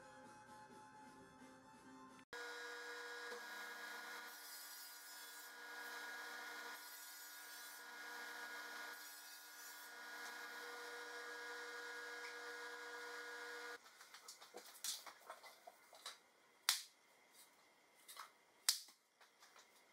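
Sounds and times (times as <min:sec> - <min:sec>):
saw cutting wood: 0:02.3 - 0:13.8
table saw motor hum: 0:02.4 - 0:04.5, 0:05.3 - 0:06.8, 0:07.6 - 0:13.8.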